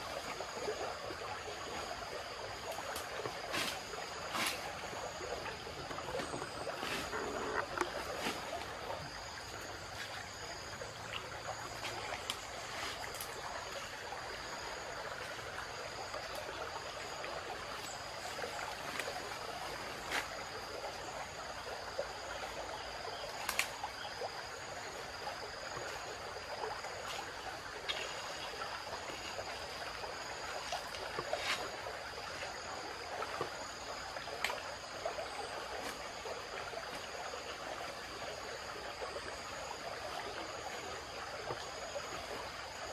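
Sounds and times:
river flowing over stones: 0.0s - 42.9s
insects shrilling: 6.0s - 8.6s.

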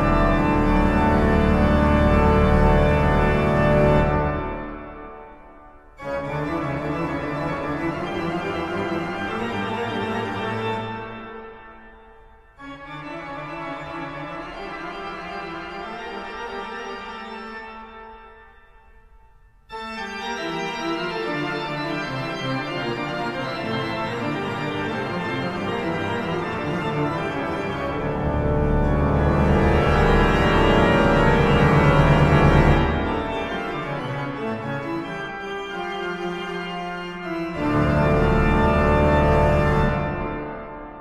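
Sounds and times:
organ playing sustained chords: 0.0s - 41.0s.

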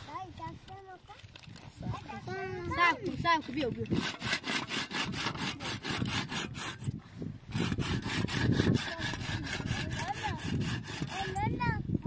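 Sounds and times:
rapid rasping strokes: 3.2s - 6.9s, 7.5s - 11.5s.

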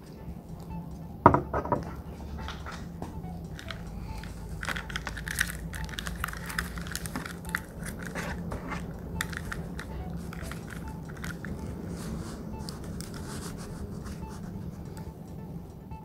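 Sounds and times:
low steady hum: 0.0s - 16.0s
crackling and rustling: 2.4s - 14.6s.

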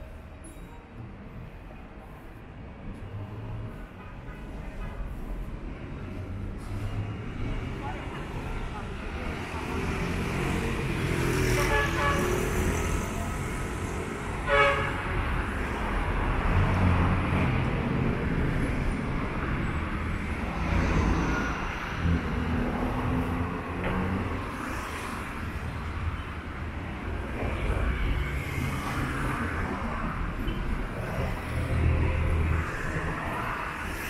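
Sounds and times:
traffic rumble: 0.0s - 34.0s
vehicle horn toot: 14.5s - 15.0s.

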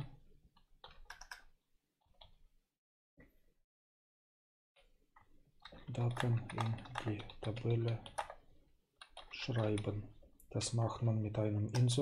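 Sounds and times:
keyboard keystrokes clicking: 0.8s - 1.5s, 5.6s - 8.4s.

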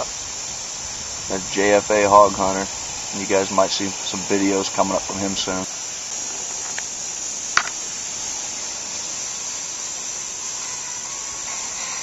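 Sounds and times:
insect chorus: 0.0s - 12.0s
sharp click: 7.6s - 7.8s.

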